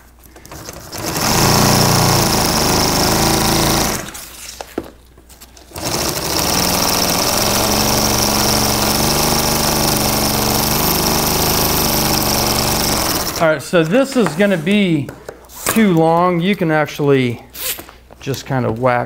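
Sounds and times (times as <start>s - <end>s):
industrial sewing machine stitching: 0.5s - 4.4s, 5.7s - 13.6s
sewing machine clicks: 5.7s - 13.5s.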